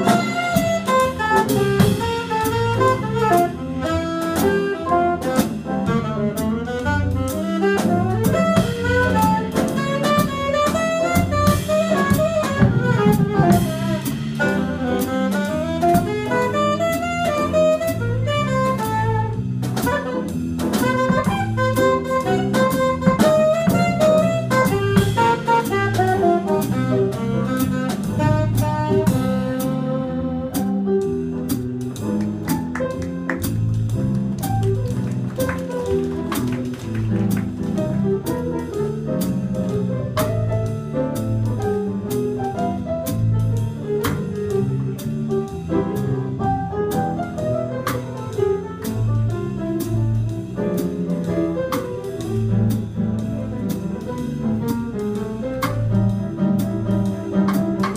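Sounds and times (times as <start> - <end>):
drum kit cymbals: 0.0 - 29.8, 37.2 - 57.9
saxophone melody: 0.0 - 31.3
walking bass line: 0.0 - 57.9.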